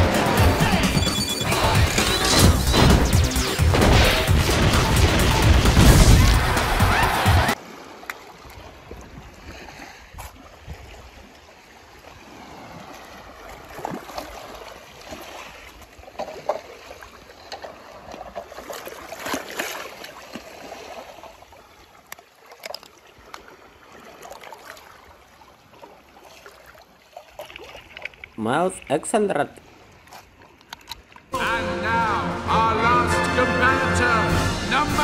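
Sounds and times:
water sloshing and splashing: 1.8 - 29.0, 29.6 - 31.3.

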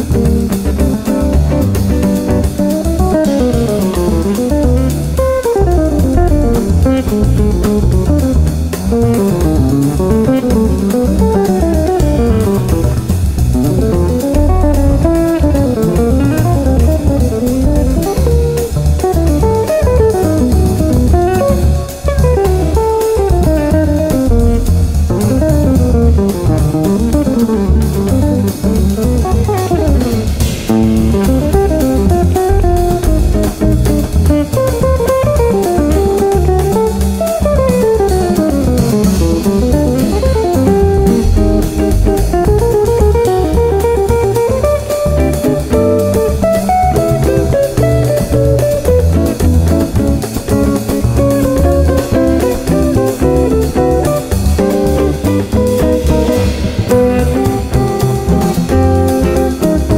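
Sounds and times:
bass: 0.0 - 59.9
drums: 0.0 - 59.9
electric guitar quick lines: 0.0 - 59.9.

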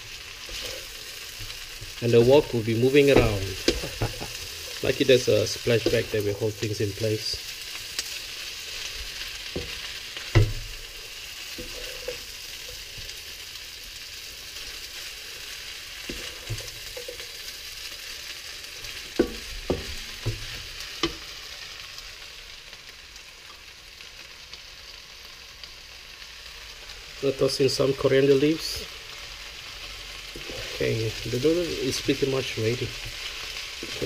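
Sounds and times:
food sizzling in a wok: 0.0 - 34.0
spatula knocking against wok: 3.1 - 4.3, 10.4 - 10.7, 19.2 - 21.2.

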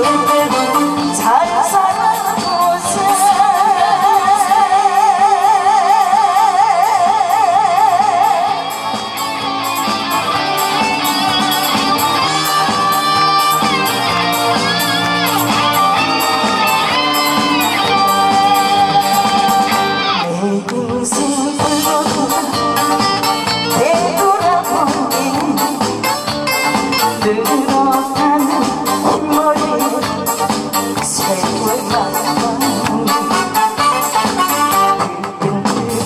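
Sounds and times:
woman singing with vibrato: 0.0 - 8.7, 16.0 - 26.0, 27.0 - 36.0
band accompaniment: 0.0 - 36.0.

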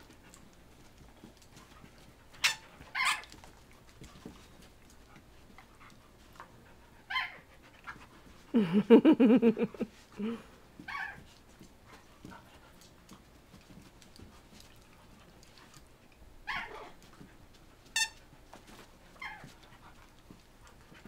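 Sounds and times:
dog yipping: 2.4 - 3.3, 7.1 - 7.4, 10.9 - 11.2, 16.5 - 16.9, 19.2 - 19.5
dog whining: 2.4 - 3.4, 7.1 - 7.5, 16.4 - 17.0, 19.2 - 19.6.

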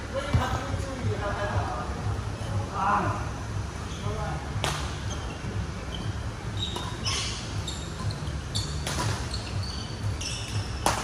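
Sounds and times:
court shoes squeaking: 3.8 - 11.0
rackets striking shuttlecock: 4.6 - 5.0, 6.7 - 9.5, 10.4 - 11.0.

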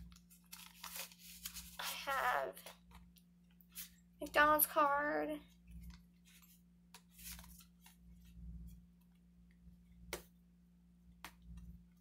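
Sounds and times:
plastic cards rustling: 0.0 - 4.0, 5.5 - 8.8
low steady hum: 0.0 - 12.0.

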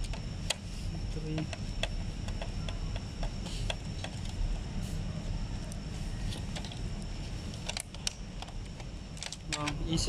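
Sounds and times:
screwdriver clicking on plastic: 1.4 - 4.4.

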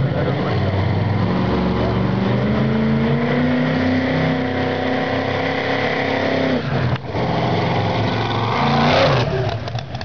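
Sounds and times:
engine at high revs: 0.0 - 10.0.

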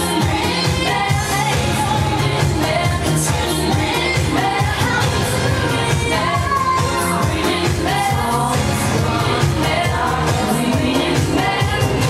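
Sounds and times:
pop song with singing: 0.0 - 12.0.

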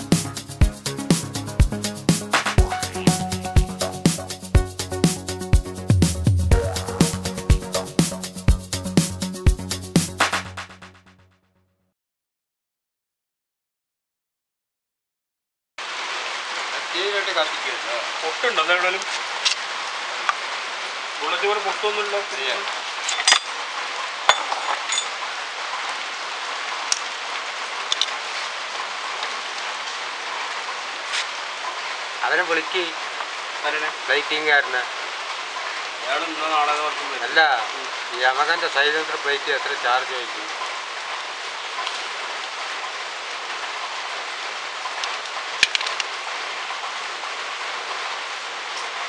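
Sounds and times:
screwdriver clinking on metal: 23.1 - 23.5, 24.3 - 25.2.

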